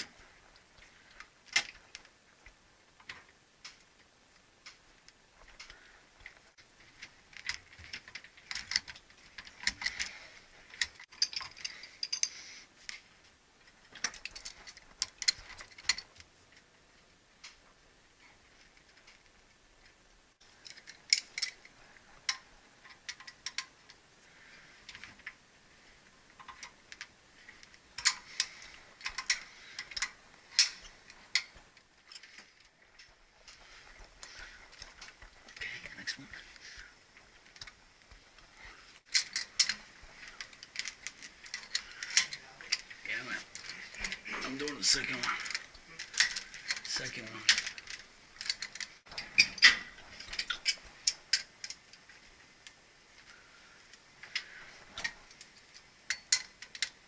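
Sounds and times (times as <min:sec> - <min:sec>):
metallic clicks from tools on valve: 0:56.1 - 0:57.0.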